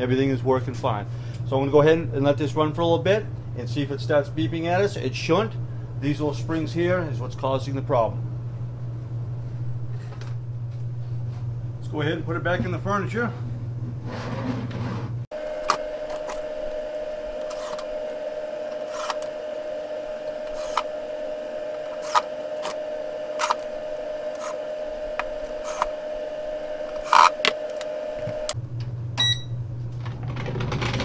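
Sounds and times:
mechanical hum: 0.0 - 31.0
short beep: 29.2 - 29.5.

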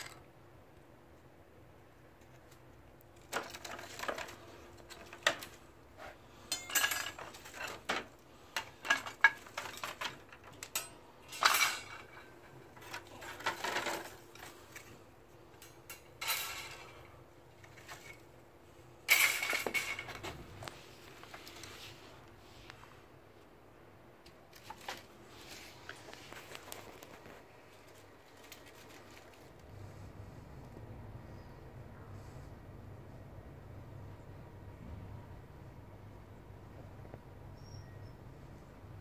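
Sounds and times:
plastic crate rattling: 3.2 - 5.6, 11.7 - 14.6.

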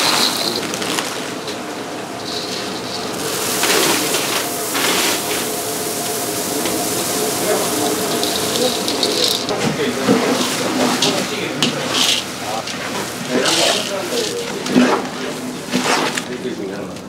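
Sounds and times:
seeds pouring into a bowl: 0.0 - 1.1, 2.2 - 9.6.

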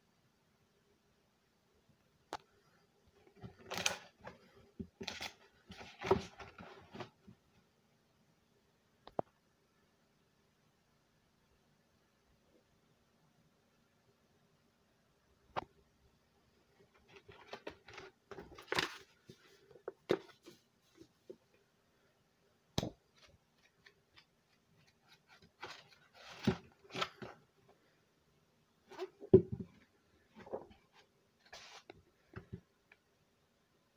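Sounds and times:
book pages flipping: 3.3 - 4.4, 5.0 - 7.2, 17.0 - 21.4, 23.1 - 27.4, 30.4 - 32.0.

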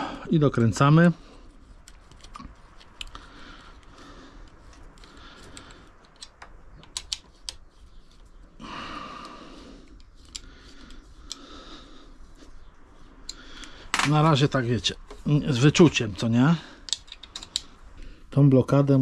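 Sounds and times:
wrench and bolts clicking: 16.8 - 17.7.

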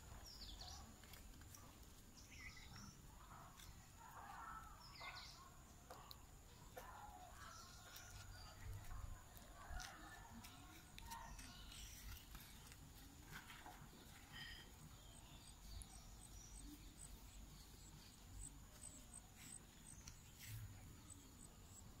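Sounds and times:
faint bird chirps: 1.5 - 9.1, 13.6 - 22.0.

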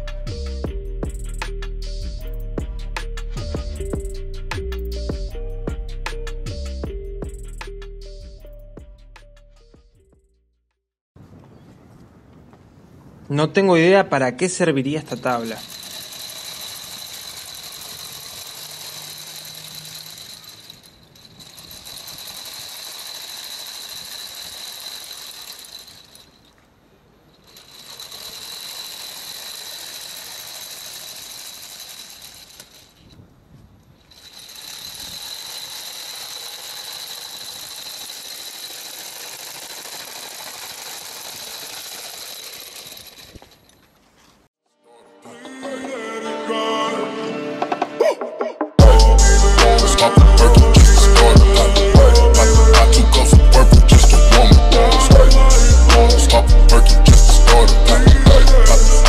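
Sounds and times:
rattling whir of wheels: 0.0 - 9.2, 14.5 - 44.5, 48.8 - 59.0
high-pitched motor whine: 15.1 - 26.3, 48.8 - 59.0.

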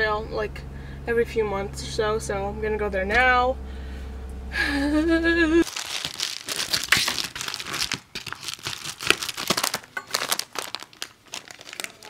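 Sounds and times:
packaging crinkling and tearing: 5.6 - 12.0.

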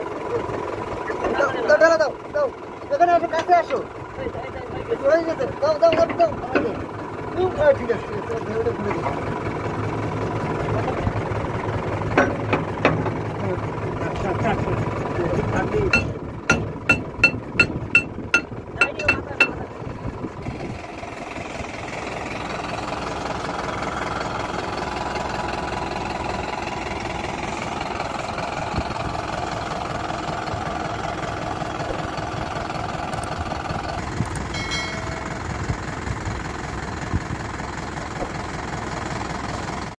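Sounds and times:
tractor diesel engine running: 0.0 - 39.9
metal-on-metal strikes: 15.9 - 19.7.

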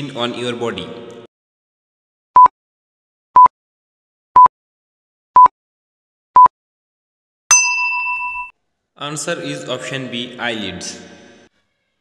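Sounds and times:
bright ringing ding: 7.5 - 8.5.

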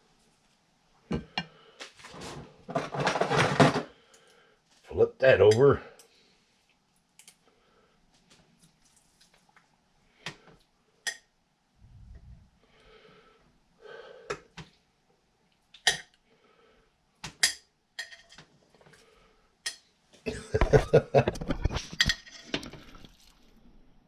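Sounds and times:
soft rustling: 8.1 - 9.7.

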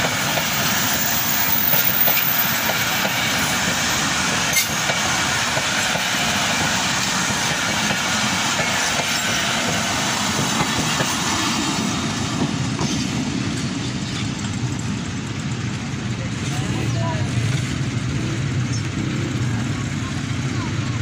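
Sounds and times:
train wheel and track rush: 0.0 - 21.0.

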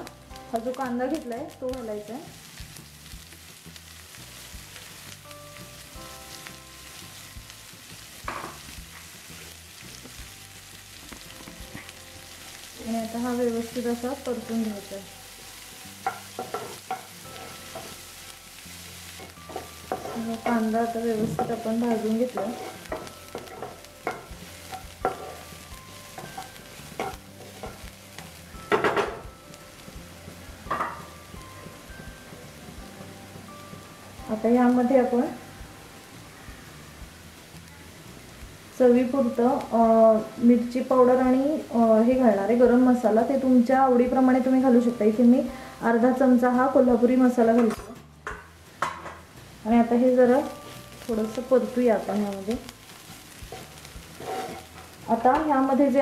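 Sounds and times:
onion sizzling in hot oil: 0.0 - 56.0
wooden spatula scraping a pan: 18.9 - 28.0, 50.3 - 55.4.

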